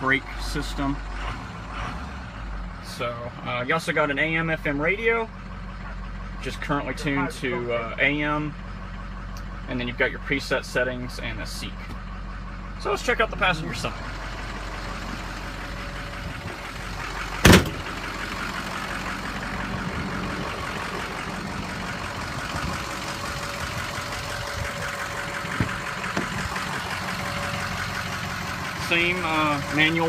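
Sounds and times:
low engine-like hum: 0:00.0 - 0:30.0
truck door slamming: 0:17.4 - 0:18.0, 0:25.4 - 0:26.5.

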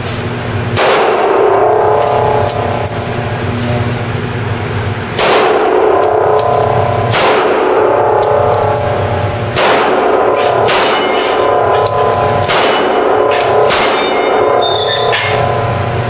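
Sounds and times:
pistol shots: 0:00.8 - 0:02.4, 0:05.2 - 0:14.6
steel plate clanging and ringing: 0:06.0 - 0:09.0, 0:10.4 - 0:15.6.

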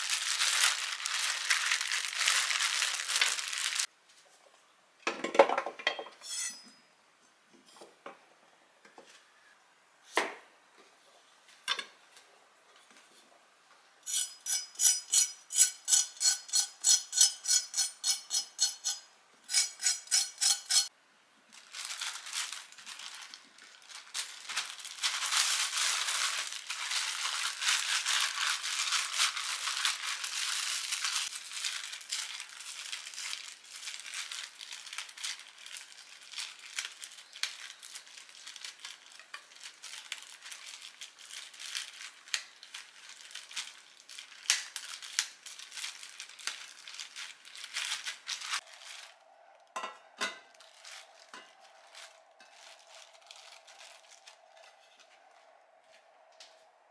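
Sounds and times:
plastic bag crinkling: 0:00.0 - 0:03.9, 0:21.5 - 0:49.8, 0:50.4 - 0:56.3.

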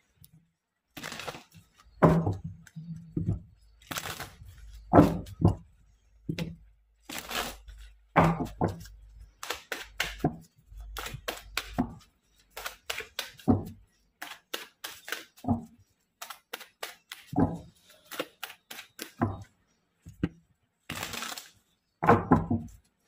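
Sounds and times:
cards being shuffled: 0:07.1 - 0:07.9, 0:08.5 - 0:15.5, 0:16.2 - 0:19.2.

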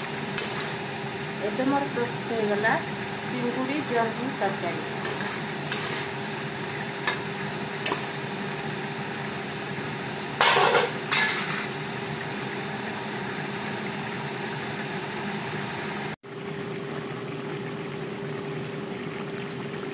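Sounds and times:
metal spatula scraping a pan: 0:05.0 - 0:06.2
curry bubbling: 0:16.3 - 0:19.9.

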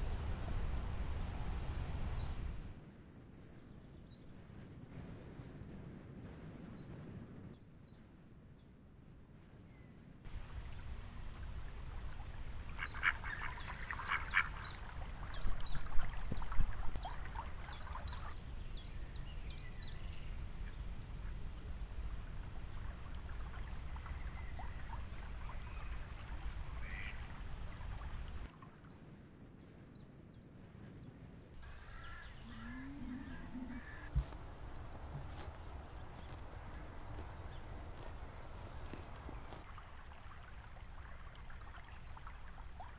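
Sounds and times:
low wind rumble: 0:00.0 - 0:41.8
ducks quacking: 0:12.7 - 0:14.8, 0:26.8 - 0:27.2, 0:31.7 - 0:39.5.

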